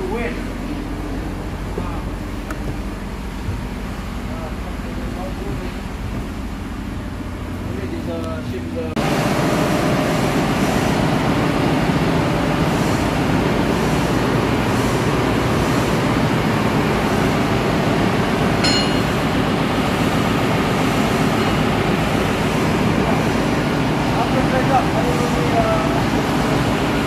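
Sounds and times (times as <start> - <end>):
ship engine room machinery drone: 0.0 - 27.0
short metallic ping: 18.6 - 19.3.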